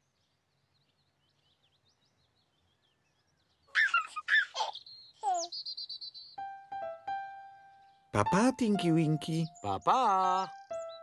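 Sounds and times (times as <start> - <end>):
faint bird chirps: 0.0 - 6.5
baby laughing: 3.7 - 5.6.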